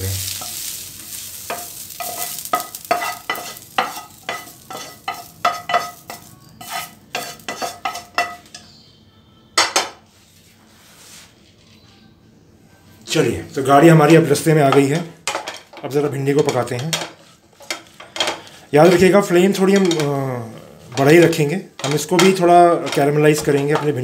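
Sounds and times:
light sizzle: 0.0s - 8.7s, 13.0s - 24.0s
metal pan scraping: 1.5s - 8.6s, 16.5s - 20.1s.

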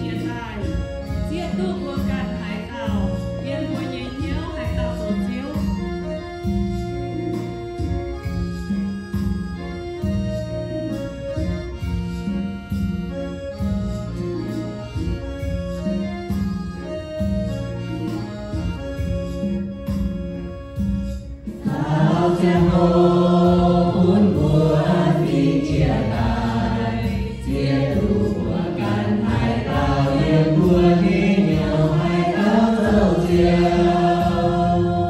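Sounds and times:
keyboard: 0.0s - 35.0s
mixed choir singing a hymn: 21.6s - 35.0s.

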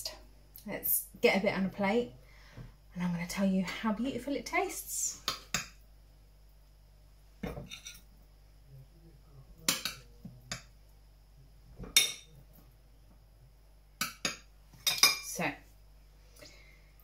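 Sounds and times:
cutlery clinking on ceramic dish: 7.4s - 8.1s, 11.9s - 12.4s, 14.0s - 15.3s.

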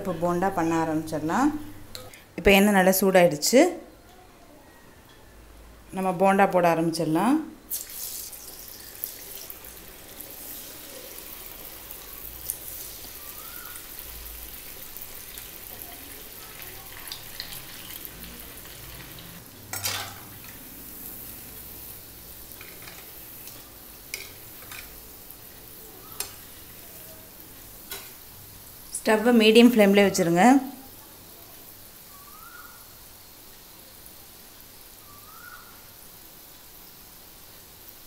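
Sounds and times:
batter deep-frying in oil: 5.8s - 38.0s
oil popping and crackling: 7.7s - 28.3s.

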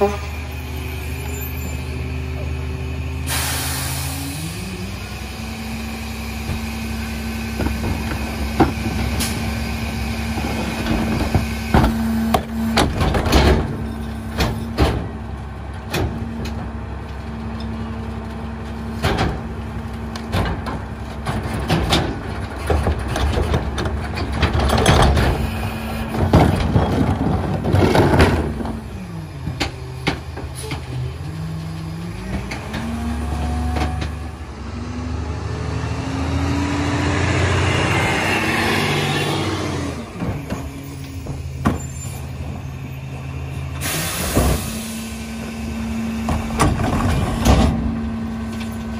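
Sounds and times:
diesel truck engine: 0.0s - 48.9s.

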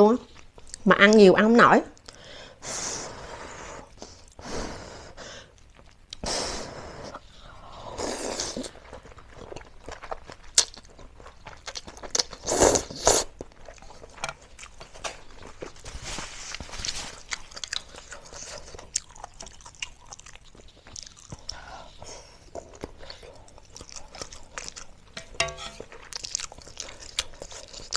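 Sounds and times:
wet chewing clicks: 17.2s - 21.8s.

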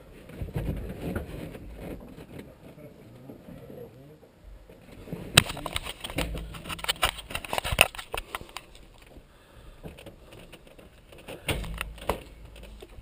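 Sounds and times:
camera handling clicks and rustling: 5.4s - 9.1s.

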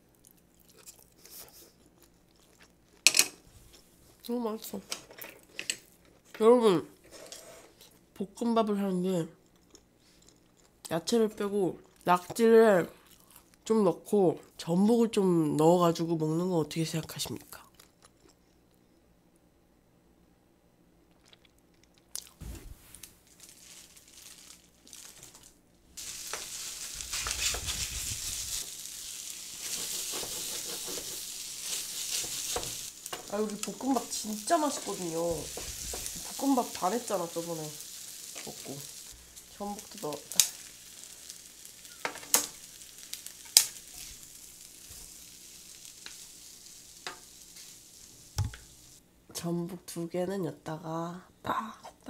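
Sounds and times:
spatulas scraping metal tray: 7.0s - 7.7s, 29.6s - 33.2s
spatulas scraping a pan: 7.0s - 7.8s, 26.0s - 36.5s
plastic bag crinkling: 22.2s - 49.0s
food sizzling in a pan: 22.8s - 49.0s.

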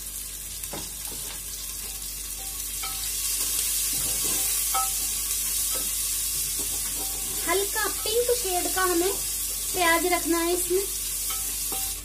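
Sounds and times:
onions sizzling in a pot: 0.0s - 12.0s
wooden spatula scraping a pot: 3.4s - 9.7s.

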